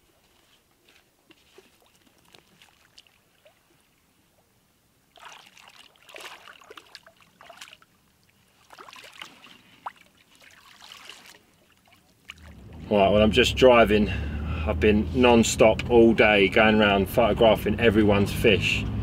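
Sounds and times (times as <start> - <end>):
water splashing and sloshing: 0.0 - 13.0
water dripping from sling: 5.2 - 12.9.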